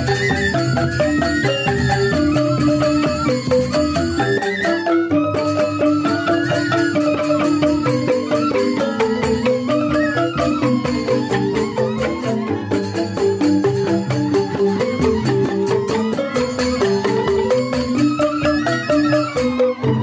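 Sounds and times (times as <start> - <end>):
bamboo xylophones playing fast: 0.0 - 20.0
barrel drums: 0.0 - 20.0.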